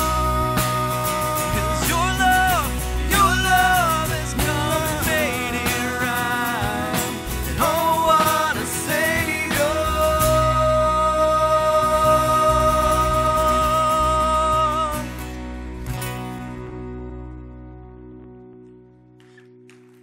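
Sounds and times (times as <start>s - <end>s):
sliding melody line: 0.0s - 15.3s
worship band music: 0.0s - 18.8s.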